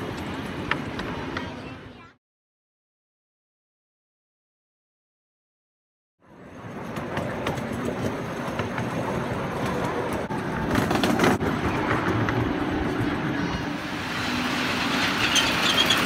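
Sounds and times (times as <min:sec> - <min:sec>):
wheels clicking over rail joints: 0:00.0 - 0:01.8, 0:06.4 - 0:16.0.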